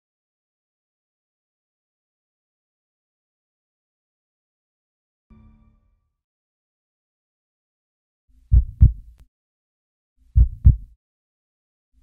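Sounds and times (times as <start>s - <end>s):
heartbeat double thump: 8.5s - 9.1s, 10.4s - 10.9s.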